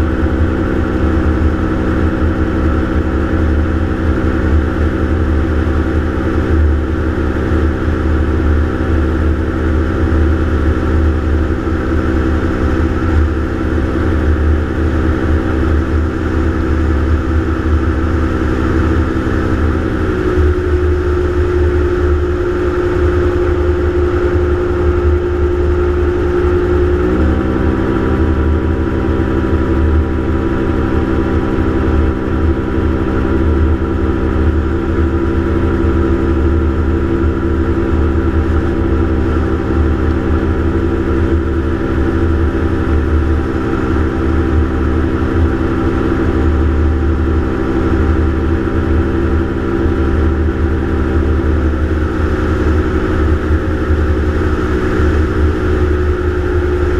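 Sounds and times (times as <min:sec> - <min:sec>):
gyroplane engine and propeller droning: 0:00.0 - 0:56.9.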